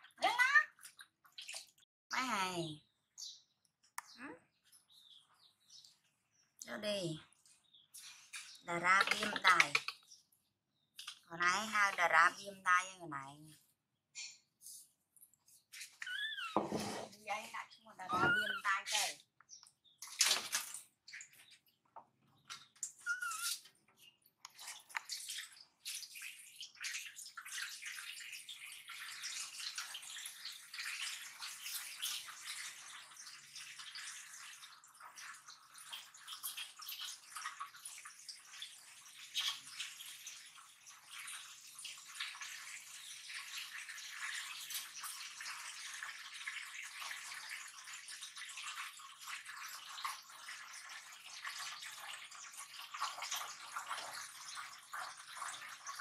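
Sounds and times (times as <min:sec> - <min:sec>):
water running into metal basin: 0:07.6 - 0:10.0, 0:15.8 - 0:19.2, 0:22.4 - 0:56.0
brief high squeak: 0:18.1 - 0:18.7, 0:23.0 - 0:23.6.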